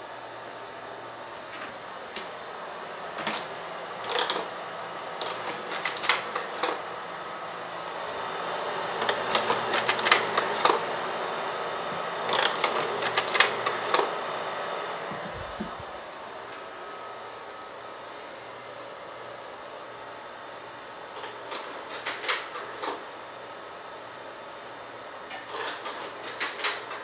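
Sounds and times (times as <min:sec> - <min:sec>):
cooling fan whirring: 0:00.0 - 0:27.0
slide projector mechanism clicking: 0:05.2 - 0:06.8, 0:09.0 - 0:10.8, 0:12.3 - 0:14.1.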